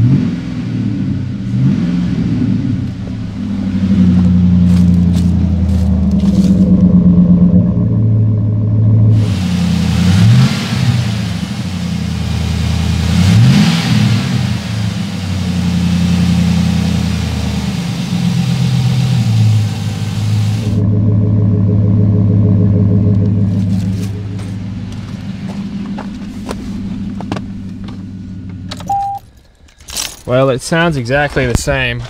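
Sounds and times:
truck engine revving and idling: 0:00.0 - 0:29.4
loud airy rush: 0:09.1 - 0:20.8.

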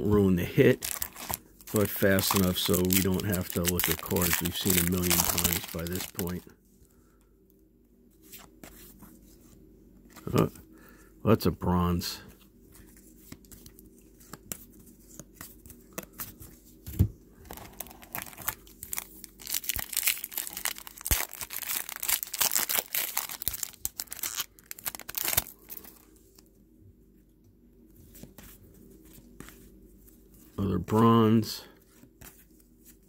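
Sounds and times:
cards being handled: 0:00.7 - 0:06.4, 0:12.3 - 0:26.4, 0:28.0 - 0:33.0
foil wrapper tearing and crinkling: 0:00.7 - 0:06.4, 0:17.6 - 0:26.0.

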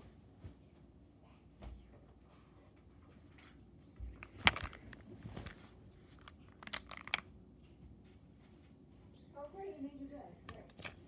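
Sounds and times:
plastic parts rustling: 0:04.0 - 0:07.3
plastic toy parts clicking: 0:06.2 - 0:07.2.

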